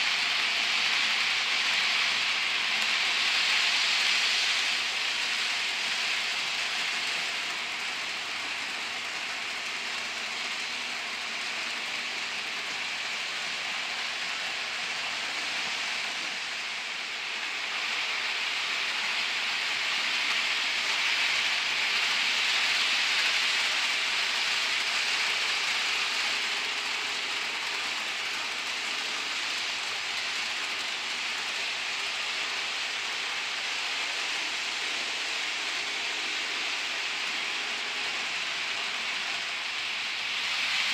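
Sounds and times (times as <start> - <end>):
model train rolling on track: 0.0 - 40.9.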